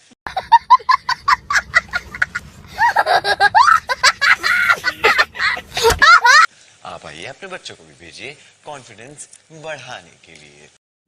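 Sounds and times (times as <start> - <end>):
child laughing hysterically: 0.3 - 6.5
child squealing: 2.8 - 6.5.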